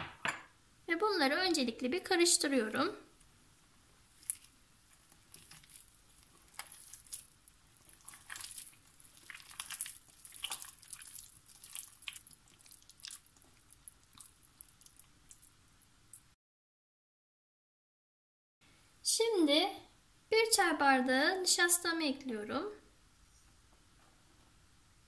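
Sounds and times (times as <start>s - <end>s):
hand squelching wet dough: 4.1s - 15.5s.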